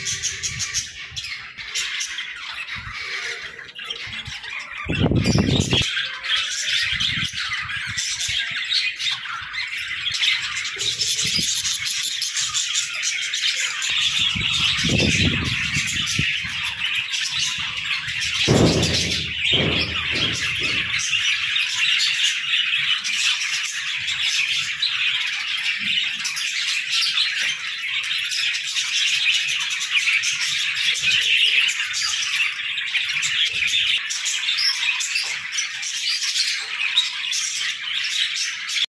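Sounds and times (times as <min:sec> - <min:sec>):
budgerigars chattering and squawking: 0:00.0 - 0:38.8
short low thumps: 0:18.5 - 0:21.0.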